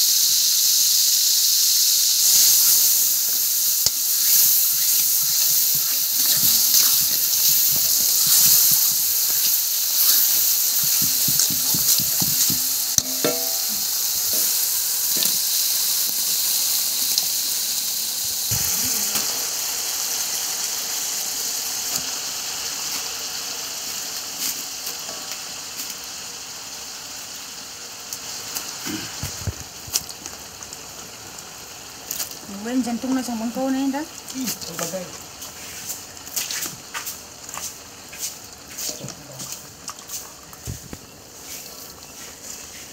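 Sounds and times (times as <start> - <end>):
meat sizzling in a wok: 0.0 - 42.9
spatula scraping and stirring: 3.7 - 14.6, 34.5 - 42.9.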